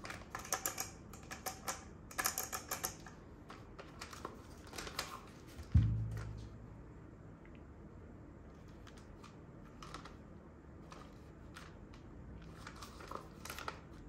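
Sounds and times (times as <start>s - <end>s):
low thump: 5.8s - 6.8s.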